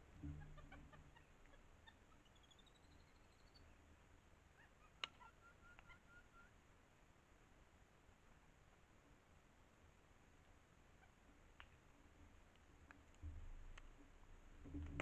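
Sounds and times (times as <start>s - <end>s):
forest ambience: 0.0s - 14.7s
high whistled bird calls: 2.2s - 3.7s.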